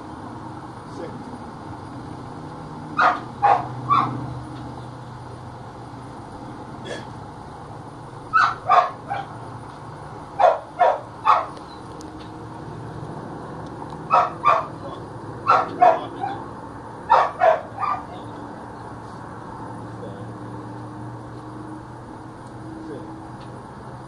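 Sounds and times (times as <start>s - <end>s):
dog barking: 3.0s - 4.2s, 8.3s - 9.4s, 10.4s - 11.6s, 14.1s - 14.8s, 15.4s - 16.4s, 17.1s - 18.2s.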